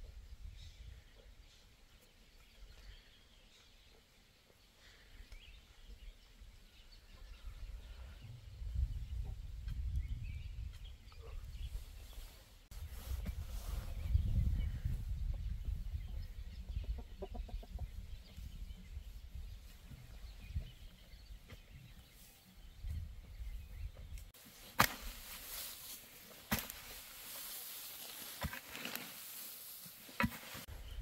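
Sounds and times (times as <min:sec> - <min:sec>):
chickens clucking: 0:15.3 - 0:19.2.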